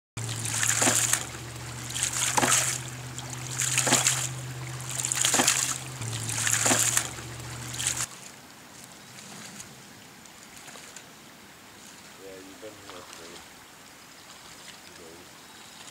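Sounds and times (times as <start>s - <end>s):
water gushing and splashing: 0.2s - 8.2s.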